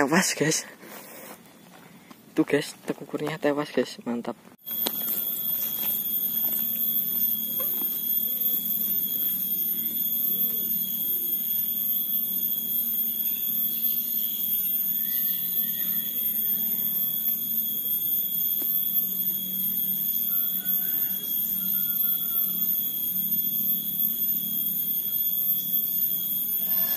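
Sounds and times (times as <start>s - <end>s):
cicadas droning: 0.0s - 26.9s
low hum: 4.6s - 26.9s.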